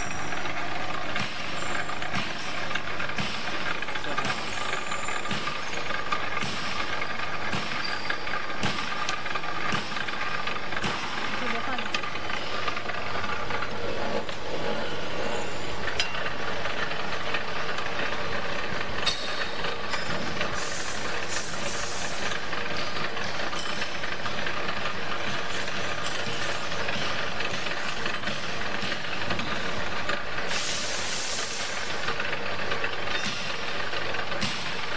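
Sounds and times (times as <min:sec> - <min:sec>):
wire stripping machine running: 0:00.0 - 0:34.9
high hiss: 0:30.5 - 0:32.0.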